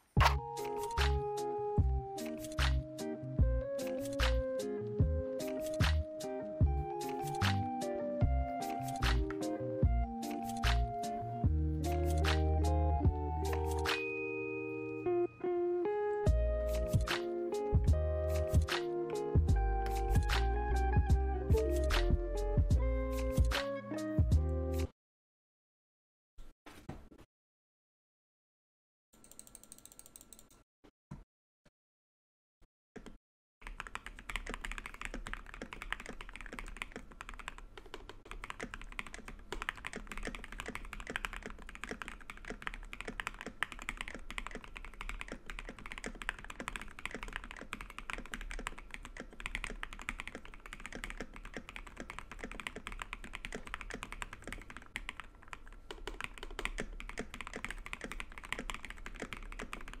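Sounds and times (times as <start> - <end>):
mechanical keyboard typing: 29.2 - 30.6, 33.6 - 60.0.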